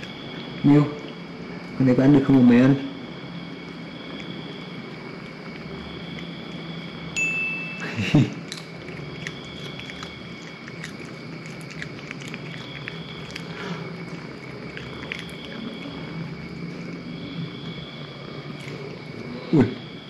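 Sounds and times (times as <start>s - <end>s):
cat chewing a beetle: 0.0s - 20.0s
bell-like ding: 7.2s - 8.0s.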